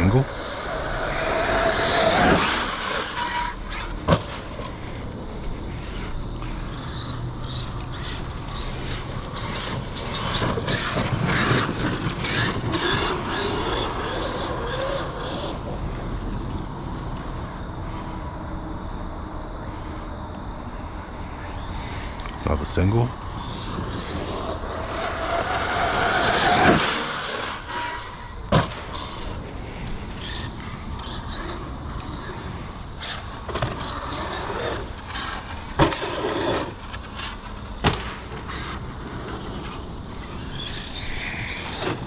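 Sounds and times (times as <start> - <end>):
electric motor whining: 0.0 - 4.4, 6.5 - 16.1, 23.2 - 28.4
tyres on dirt: 0.0 - 17.6, 21.4 - 42.0.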